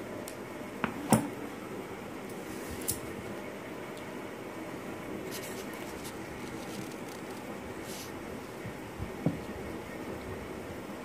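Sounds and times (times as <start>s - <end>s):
room noise: 0.0s - 11.0s
scissors cutting paper: 5.3s - 8.1s.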